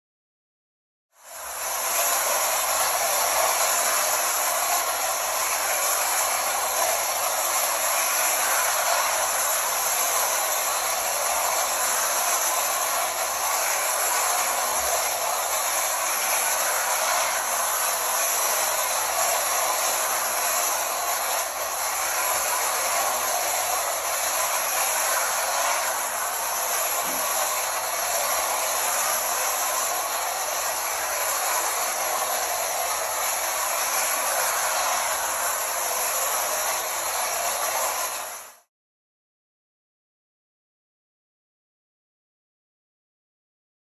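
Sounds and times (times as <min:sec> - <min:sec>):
clockwork motor whirring: 0:01.2 - 0:38.7
toy train wheels on metal rails: 0:01.2 - 0:38.7.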